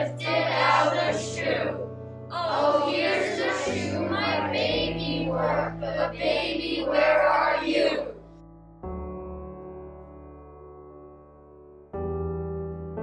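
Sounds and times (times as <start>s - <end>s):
voices singing slow song: 0.0s - 8.2s
sustained low accompaniment: 0.0s - 10.2s.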